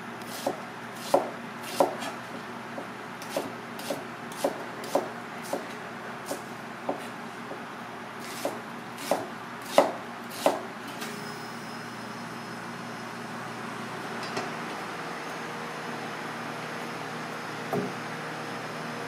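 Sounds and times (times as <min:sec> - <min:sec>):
knife chopping onion on board: 0:00.3 - 0:07.6, 0:08.2 - 0:10.7.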